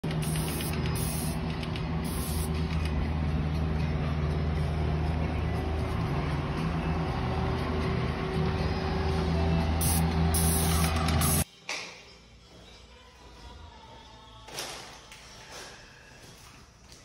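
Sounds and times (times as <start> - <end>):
engine humming: 0.0 - 11.4.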